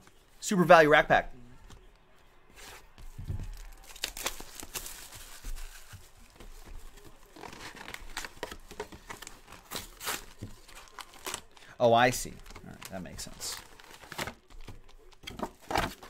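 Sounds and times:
shrink wrap crinkling and tearing: 3.4 - 16.0.

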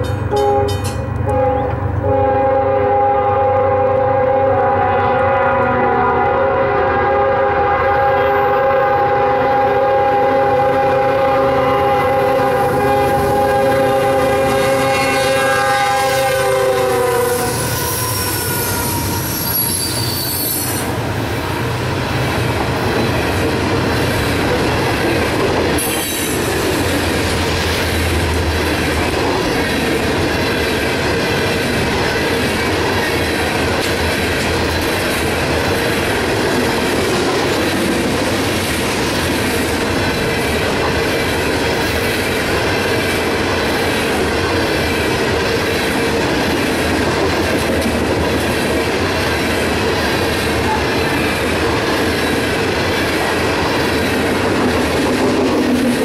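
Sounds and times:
train wheels clattering on rails: 0.0 - 2.2, 11.5 - 56.0
locomotive horn blast: 0.3 - 20.2
high wheel squeal: 17.2 - 20.9.

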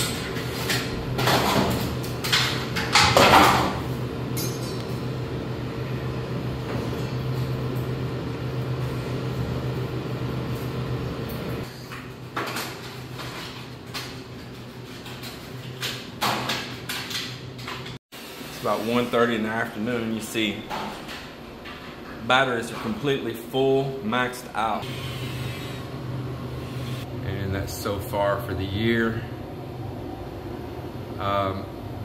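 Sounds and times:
steady low hum: 21.7 - 32.0.

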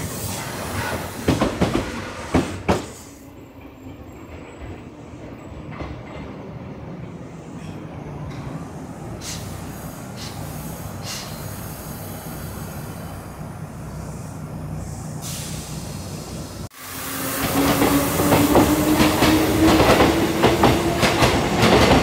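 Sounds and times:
electric train humming: 3.2 - 22.0
short air hisses: 9.2 - 13.2, 13.9 - 17.2.

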